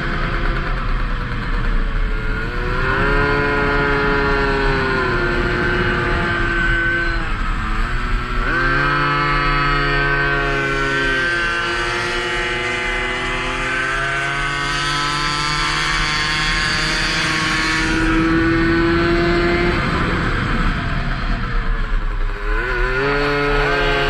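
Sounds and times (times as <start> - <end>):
moped engine at high revs: 0.0 - 24.0
wind rush on microphone: 16.6 - 22.2.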